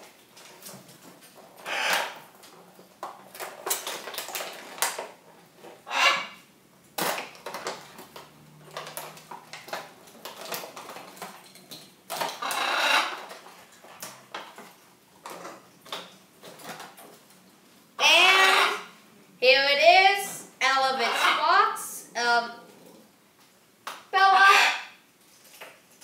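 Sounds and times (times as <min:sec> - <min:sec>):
plastic packaging crinkling: 0:03.2 - 0:05.2.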